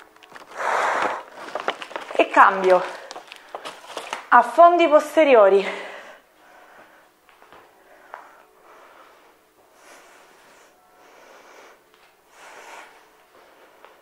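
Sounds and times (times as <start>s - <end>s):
woman breathing hard: 0.5s - 1.6s, 5.6s - 14.0s.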